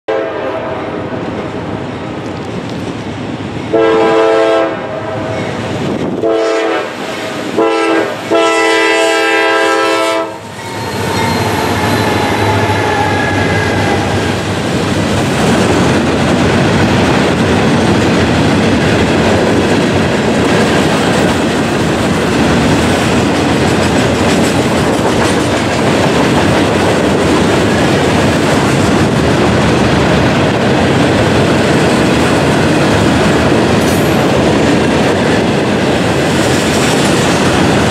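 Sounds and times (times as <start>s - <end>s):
train air horn blasts: 0.1s - 1.2s, 3.7s - 5.4s, 6.2s - 14.4s
freight train rumbling over rails: 0.1s - 37.9s.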